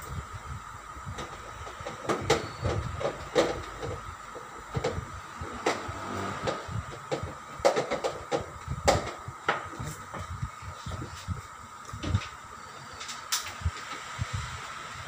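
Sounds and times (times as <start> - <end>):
plastic and metal parts knocking: 7.0 - 9.2.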